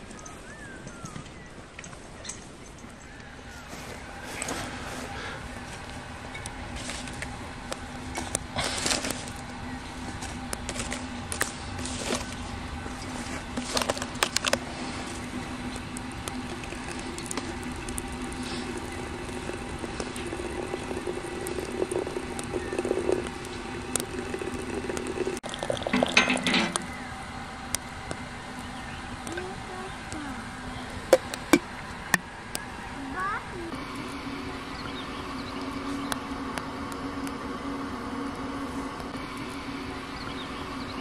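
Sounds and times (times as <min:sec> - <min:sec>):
hot water pouring into teapot: 0:11.8 - 0:27.1
glass clinking: 0:25.8 - 0:26.8.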